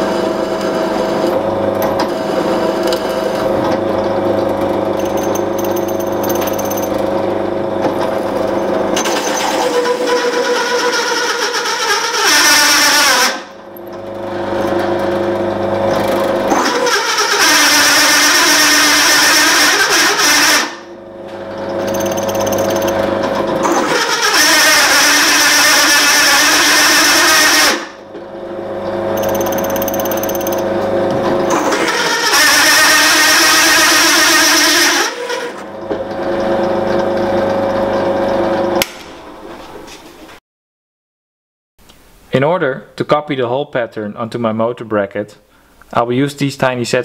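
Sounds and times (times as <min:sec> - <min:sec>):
drill press motor hum: 0:00.6 - 0:09.0, 0:21.3 - 0:25.2, 0:28.8 - 0:34.8.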